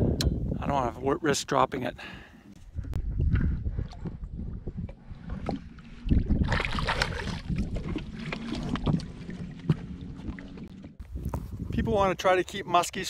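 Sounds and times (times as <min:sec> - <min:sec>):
water sloshing: 0:02.7 - 0:11.1
fish splashing: 0:05.2 - 0:11.0.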